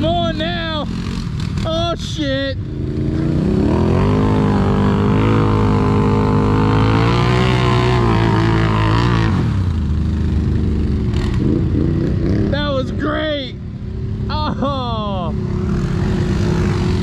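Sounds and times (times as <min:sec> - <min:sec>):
atv engine under throttle: 0:00.0 - 0:13.2, 0:13.8 - 0:17.0.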